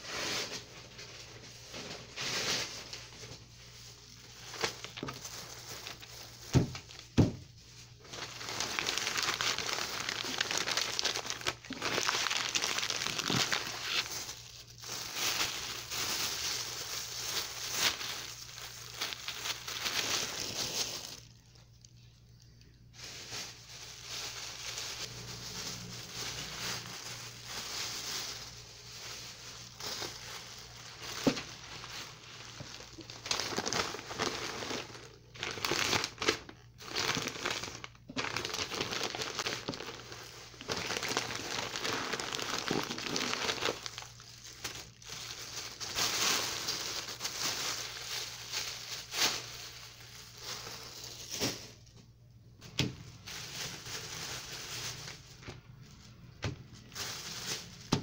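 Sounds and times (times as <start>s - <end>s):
plastic bags crinkling: 0.0s - 58.0s
newspaper rustling: 7.9s - 21.4s, 22.9s - 36.3s.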